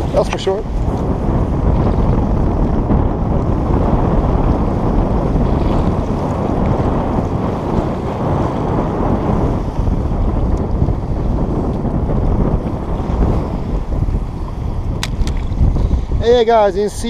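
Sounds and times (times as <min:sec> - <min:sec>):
sea waves washing against rocks: 0:00.0 - 0:17.0
wind buffeting microphone: 0:00.0 - 0:17.0.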